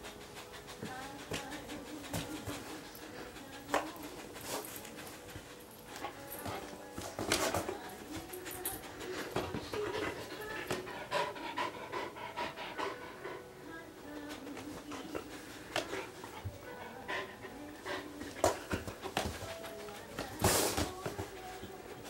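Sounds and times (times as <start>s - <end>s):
dog sniffing: 0.0s - 13.5s, 14.1s - 22.0s.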